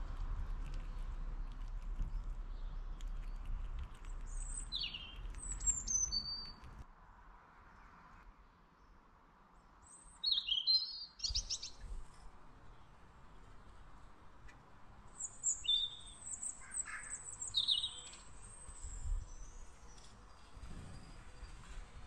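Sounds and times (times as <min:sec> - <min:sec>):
songbirds chirping: 0:00.0 - 0:06.8, 0:08.7 - 0:22.0
low background rumble: 0:00.0 - 0:06.9.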